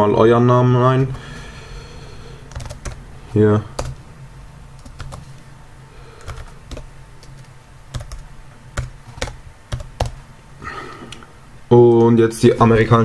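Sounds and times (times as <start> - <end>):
typing on computer keyboard: 2.5 - 3.0, 3.8 - 4.0, 4.8 - 5.2, 6.2 - 8.2, 8.8 - 10.2.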